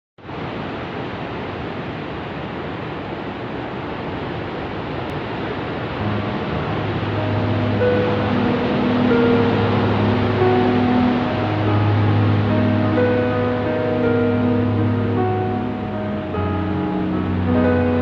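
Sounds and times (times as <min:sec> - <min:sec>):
steady rushing noise: 0:00.2 - 0:18.0
ambient music low notes: 0:05.9 - 0:18.0.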